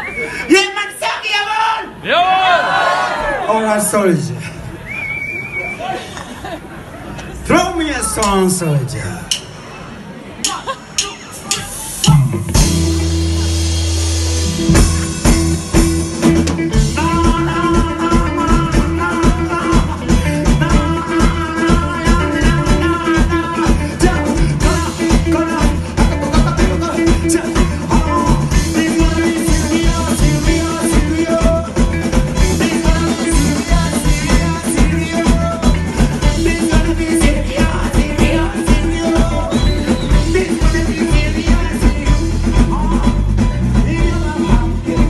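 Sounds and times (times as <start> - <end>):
reggae band playing: 0.0 - 2.0, 2.6 - 45.0
drum kit beat: 10.4 - 45.0
low bass and keyboard chord: 12.2 - 17.9.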